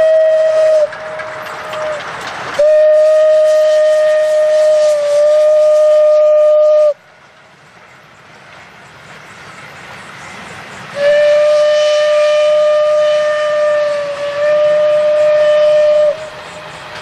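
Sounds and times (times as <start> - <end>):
steam locomotive whistle: 0.0 - 7.0, 10.9 - 17.0
passing train running noise: 0.0 - 17.0.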